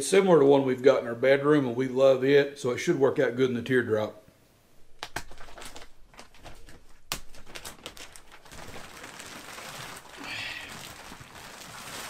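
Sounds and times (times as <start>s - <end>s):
plastic wrap crinkling and rustling: 4.8s - 12.0s.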